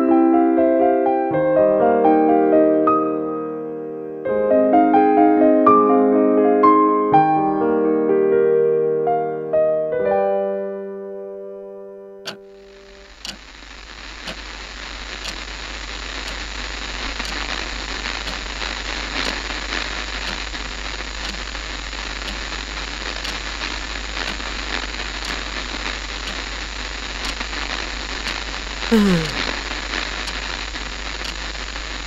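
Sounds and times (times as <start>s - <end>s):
television static hiss: 12.3s - 32.0s
faint tick: 13.2s - 13.4s, 15.2s - 15.4s, 16.2s - 16.4s, 17.2s - 17.5s, 20.2s - 20.4s, 21.2s - 21.5s, 22.2s - 22.4s, 23.2s - 23.4s, 26.2s - 26.4s, 27.2s - 27.4s.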